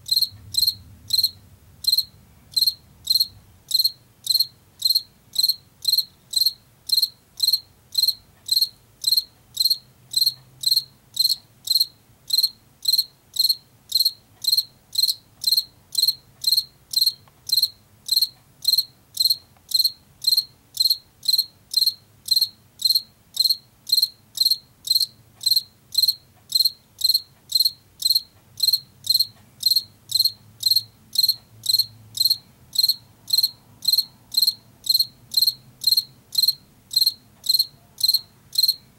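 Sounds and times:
cricket chirping: 0.0 - 38.9.

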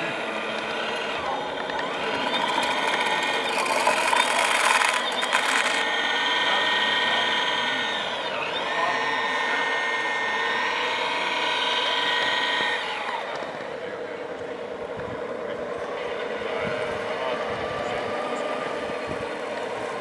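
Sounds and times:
hydraulic pump whining: 0.0 - 20.0
harsh rasping noise: 2.0 - 12.7.

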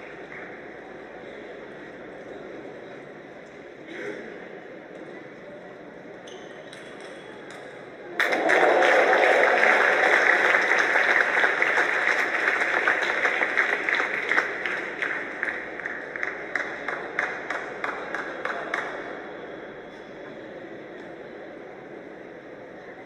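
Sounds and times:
spectators applauding: 8.1 - 19.0.

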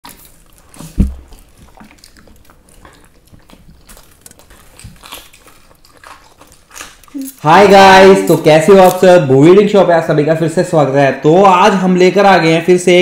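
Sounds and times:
biting and chewing: 0.0 - 7.6.

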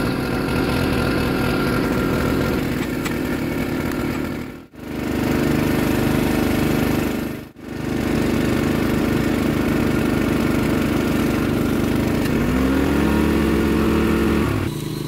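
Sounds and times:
engine running: 0.0 - 15.0
second engine rising in pitch: 12.2 - 15.0.

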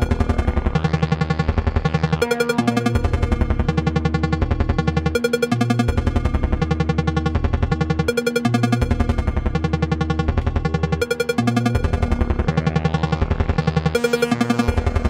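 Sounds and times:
pulsed synthesizer notes: 0.0 - 15.0
synthesizer bass: 0.0 - 15.0.

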